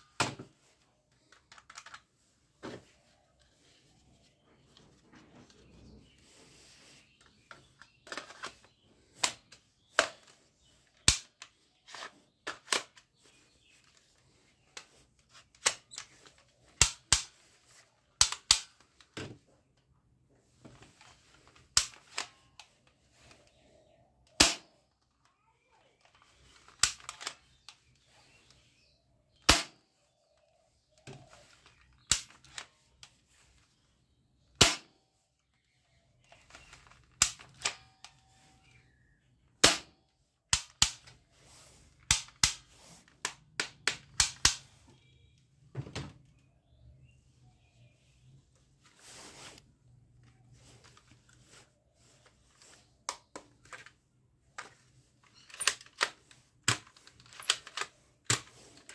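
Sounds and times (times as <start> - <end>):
plastic toy rifle clicking: 1.2 - 2.0, 11.0 - 13.1, 15.5 - 17.5, 18.2 - 19.1, 21.7 - 23.6, 26.1 - 27.8, 31.0 - 32.7, 36.3 - 38.2, 40.5 - 41.2, 42.0 - 44.7, 54.6 - 58.9.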